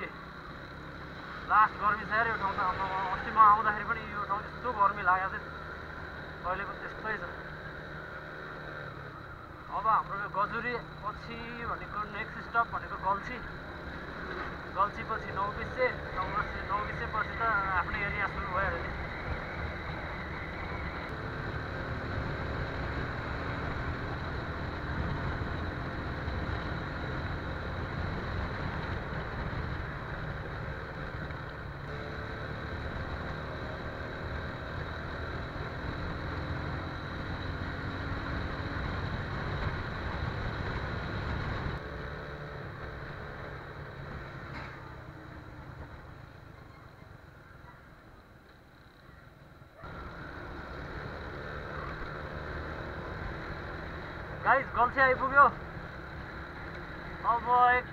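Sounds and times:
motorcycle engine revving: 0.0s - 47.5s, 49.7s - 57.9s.

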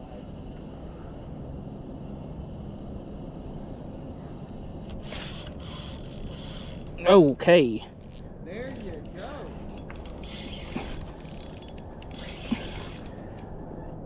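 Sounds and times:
fishing reel gears whirring: 4.9s - 13.6s
reel drag buzzing: 4.9s - 13.6s.

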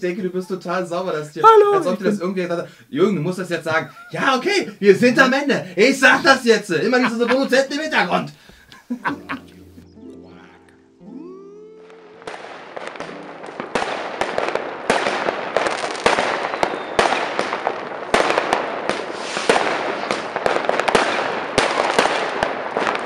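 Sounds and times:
fireworks bangs: 3.7s - 9.3s, 11.9s - 23.0s
firecrackers crackling: 3.7s - 9.4s, 11.8s - 23.0s.

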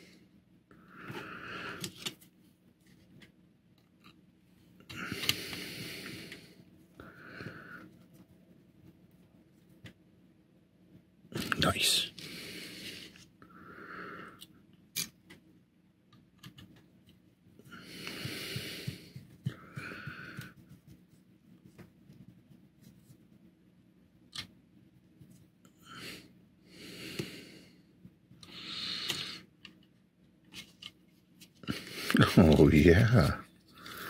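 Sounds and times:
slow breathing close up: 0.0s - 2.0s, 4.9s - 8.0s, 12.1s - 14.6s, 17.6s - 20.6s, 25.8s - 29.6s, 33.7s - 34.0s.

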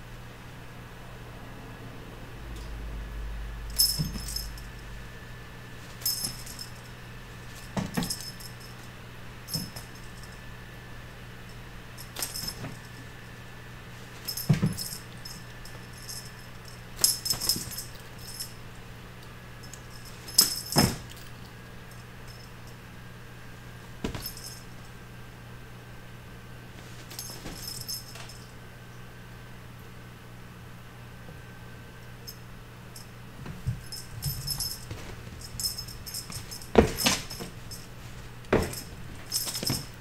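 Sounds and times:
cat toy jingling: 3.7s - 4.8s, 6.0s - 6.9s, 7.6s - 8.8s, 9.5s - 10.3s, 12.0s - 13.0s, 14.2s - 18.6s, 19.6s - 21.2s, 27.0s - 28.5s, 33.6s - 40.0s
kitten landing thud: 7.7s - 8.3s, 14.2s - 15.0s, 20.3s - 21.2s, 24.0s - 24.6s, 33.4s - 37.8s, 38.5s - 40.0s.

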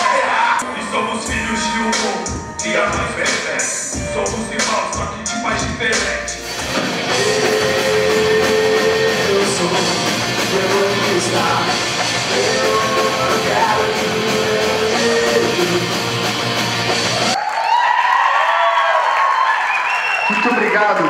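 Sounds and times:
singer holding long notes: 0.0s - 4.6s, 6.9s - 17.4s
live rock band playing: 1.0s - 17.4s.

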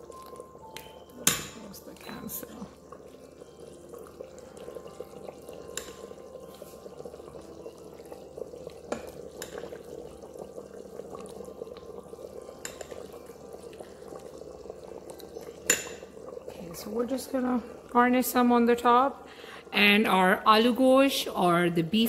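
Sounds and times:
metal ladle clinking on pot: 0.8s - 1.7s, 12.6s - 13.0s, 15.4s - 16.1s.

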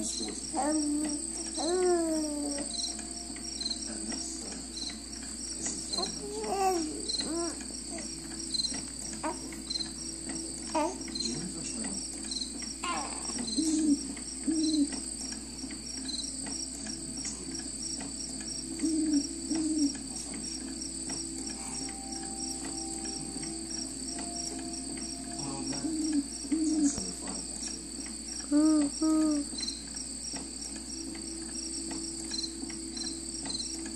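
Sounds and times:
baby cooing and fussing: 0.0s - 3.0s, 5.8s - 8.2s, 9.2s - 9.7s, 10.7s - 11.1s, 12.8s - 14.8s, 28.5s - 29.5s
crickets chirping: 0.0s - 33.9s.

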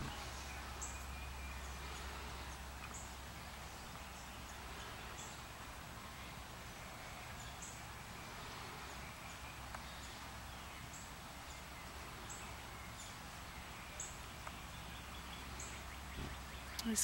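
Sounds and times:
steady low hiss: 0.0s - 17.0s.

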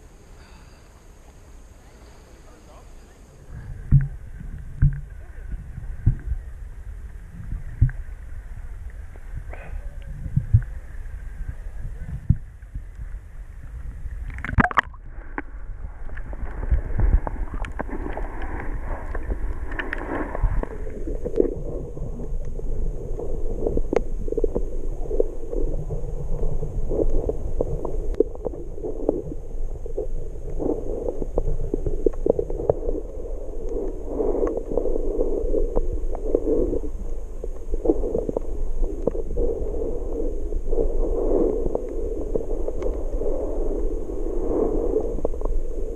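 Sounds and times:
muffled underwater gurgle: 0.0s - 45.9s
small underwater clicks: 3.8s - 5.2s, 7.0s - 10.9s, 12.1s - 39.5s, 40.7s - 43.9s
water sloshing and splashing: 14.3s - 15.0s.

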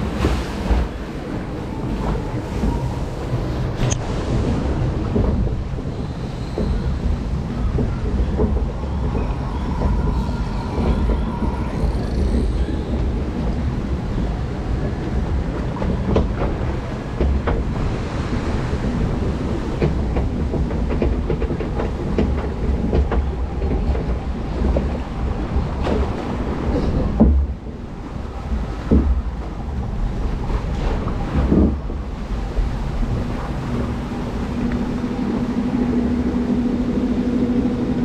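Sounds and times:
lift conveyor rumble and rattle: 0.0s - 38.0s.

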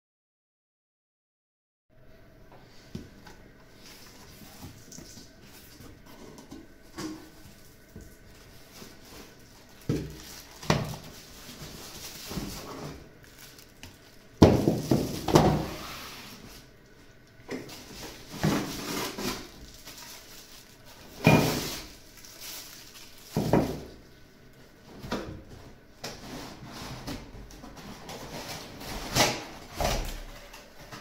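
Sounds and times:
cardboard box rustling and knocking: 9.1s - 13.0s, 14.4s - 15.8s.

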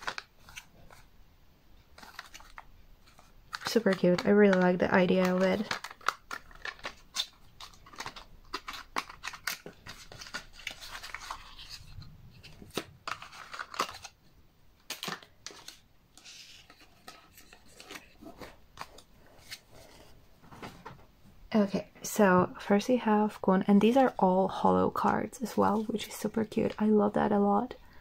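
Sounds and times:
plastic packaging crinkling: 1.9s - 14.2s.

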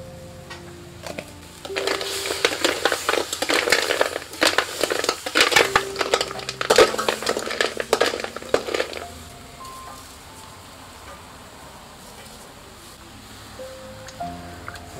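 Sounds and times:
snail shells clattering: 1.0s - 9.8s
metal spatula scraping wok: 1.6s - 9.1s.

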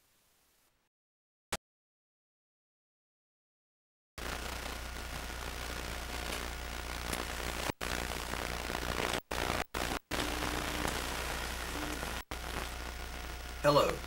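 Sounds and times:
videotape hiss and hum: 0.0s - 0.8s, 4.2s - 14.0s.

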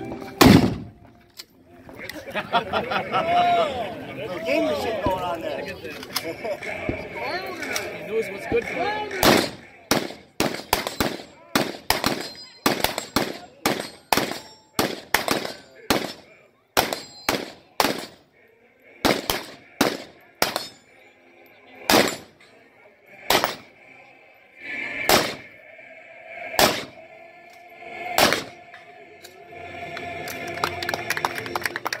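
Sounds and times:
rifle shots: 0.4s - 0.9s, 9.2s - 16.2s, 16.8s - 18.2s, 19.0s - 20.7s, 21.9s - 22.3s, 23.2s - 23.7s, 25.1s - 25.5s, 26.6s - 27.0s, 28.2s - 28.6s.

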